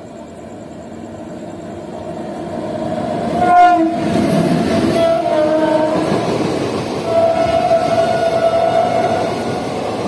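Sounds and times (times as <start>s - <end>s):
train coaches rumbling past: 0.0s - 10.0s
train wheel clatter: 3.3s - 10.0s
locomotive horn: 3.4s - 4.1s, 4.9s - 6.1s, 7.1s - 9.2s.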